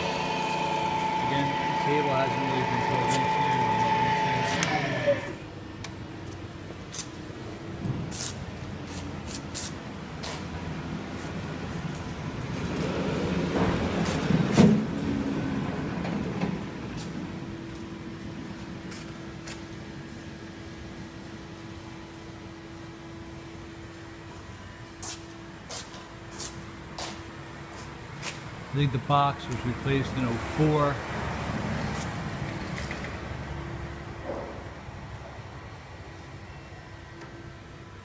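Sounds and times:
low shop hum: 0.0 - 38.0.

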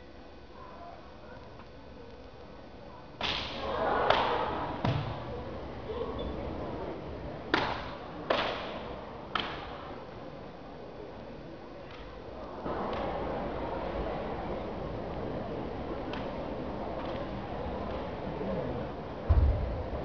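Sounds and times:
sharp karate strike slaps: 3.2 - 5.2, 7.5 - 9.7.

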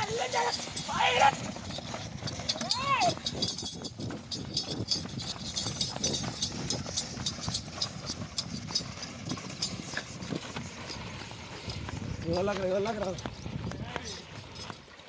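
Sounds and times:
wooden cart rattling: 0.0 - 14.9
hoofbeats on dirt: 0.0 - 15.0.

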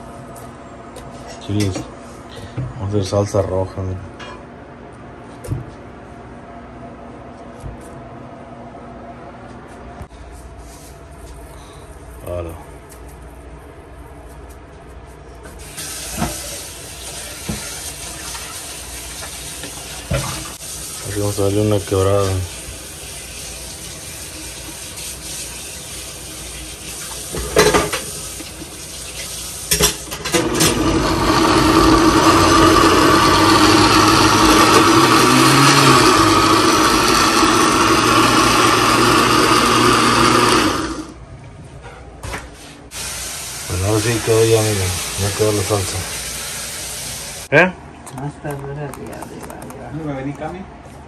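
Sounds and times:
blender running: 30.2 - 41.2
blender motor winding down: 30.3 - 41.2.

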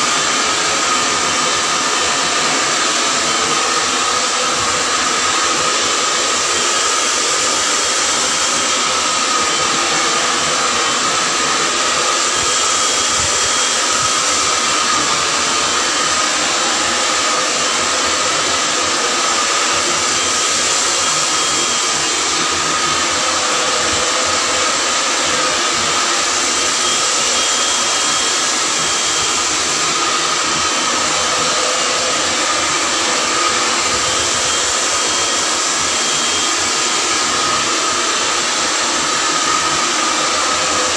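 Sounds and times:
hair dryer running: 0.0 - 40.9.

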